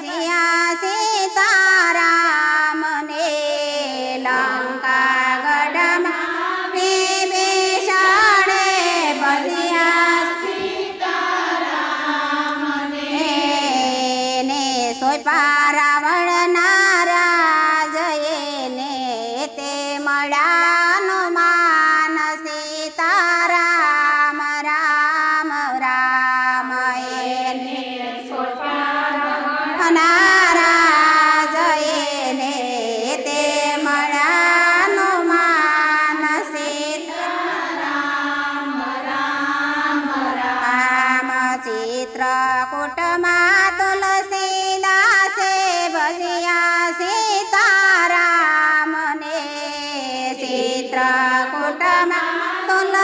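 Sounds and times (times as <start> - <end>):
women singing devotional song: 0.0 - 53.0.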